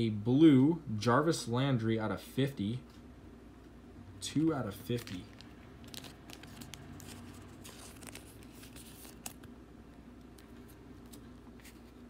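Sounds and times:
trading cards rustling and clicking: 4.6 - 9.6, 10.2 - 12.0.

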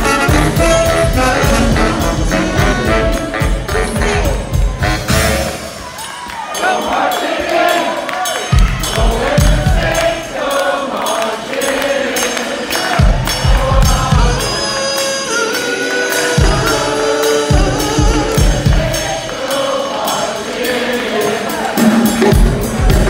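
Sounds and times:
bass drum: 0.0 - 5.7, 8.6 - 10.1, 13.0 - 14.6, 22.1 - 23.0
funk brass band music: 0.0 - 23.0
voices singing along: 0.0 - 23.0.

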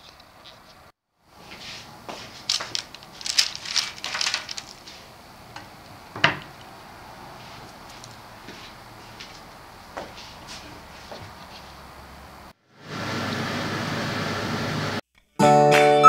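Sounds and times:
light rustles and clicks: 1.5 - 5.7, 7.5 - 9.4.

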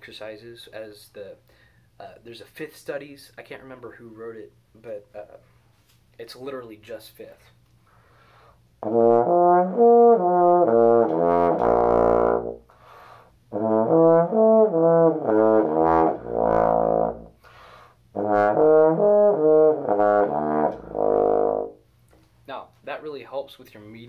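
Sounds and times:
trombone playing stepped notes: 8.8 - 12.6, 13.5 - 17.4, 18.1 - 21.8.

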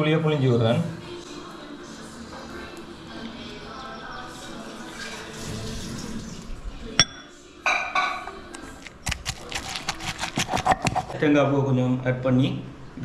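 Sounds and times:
pestle clinking in stone mortar: 7.0 - 7.3, 9.1 - 11.2
pestle knocking in mortar: 10.1 - 11.1.

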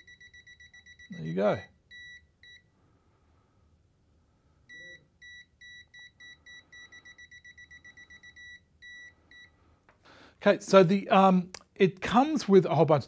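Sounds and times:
multimeter beeping: 0.0 - 2.7, 4.7 - 9.6.

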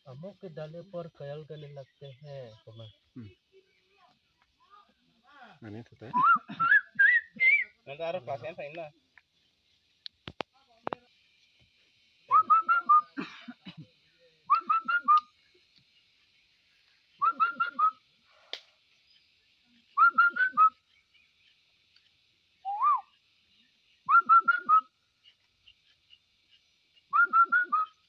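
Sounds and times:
person whistling bird call: 6.1 - 7.8, 12.3 - 13.2, 14.5 - 15.3, 17.2 - 18.0, 20.0 - 20.8, 22.6 - 23.1, 24.1 - 24.9, 27.1 - 28.0.

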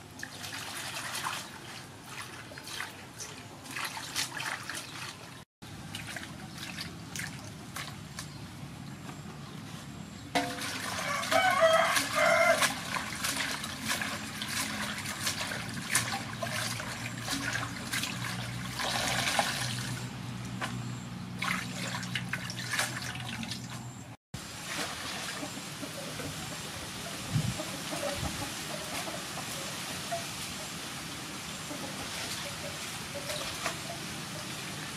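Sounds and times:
water splashing and dripping: 0.0 - 8.3, 10.4 - 34.9
chicken calling loudly: 11.0 - 12.7.

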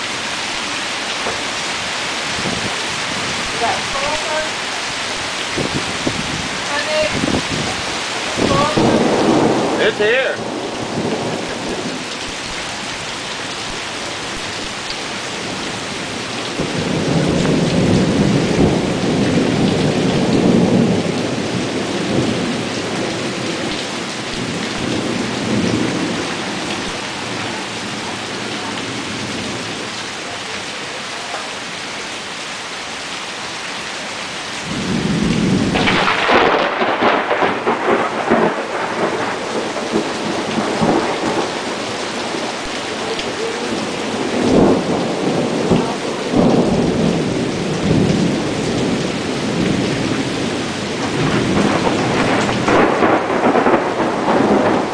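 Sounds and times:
steady rain: 0.0 - 54.9
thunder rumbling: 5.6 - 12.8, 15.2 - 30.0, 34.6 - 54.9
close thunderclap cracking: 7.1 - 12.2, 16.5 - 27.4, 34.6 - 43.0, 43.7 - 54.9.

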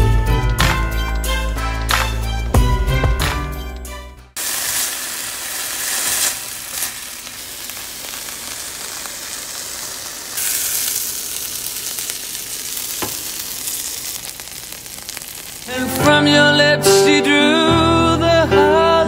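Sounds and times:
meat sizzling in a frying pan: 4.4 - 16.1
quesadillas frying: 4.4 - 16.4.

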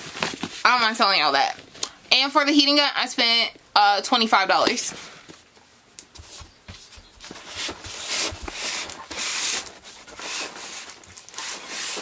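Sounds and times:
cardboard box rustling and scraping: 6.8 - 12.0.

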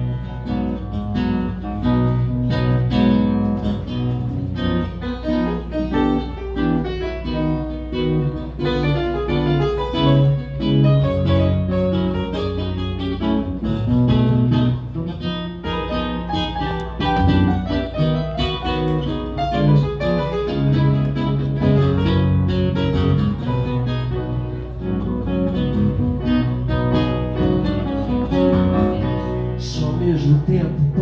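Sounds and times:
piano bass notes: 0.0 - 31.0
plucked acoustic guitar: 0.0 - 31.0.

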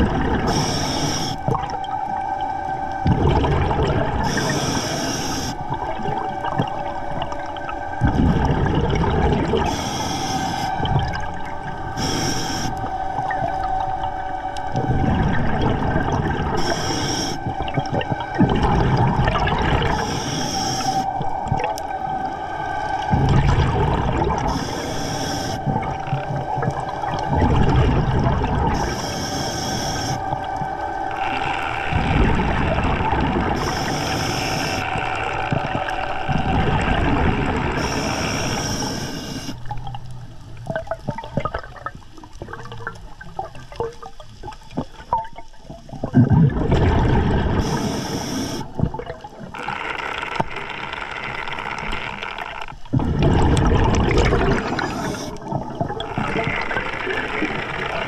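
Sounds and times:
exhaust bubbles gushing: 0.0 - 0.8, 1.4 - 4.6, 5.5 - 9.8, 12.7 - 16.8, 17.4 - 20.2, 21.1 - 24.8, 25.5 - 29.2, 30.0 - 38.9, 39.5 - 58.0
steady whine: 0.0 - 40.5
regulator inhale hiss: 0.4 - 1.6, 4.2 - 5.7, 9.6 - 10.9, 11.9 - 13.0, 16.6 - 17.5, 19.9 - 21.2, 24.5 - 25.7, 28.8 - 30.4, 33.5 - 35.0, 37.7 - 39.6, 47.6 - 48.8, 54.6 - 55.4
rapid clicking and crackling: 49.5 - 58.0.

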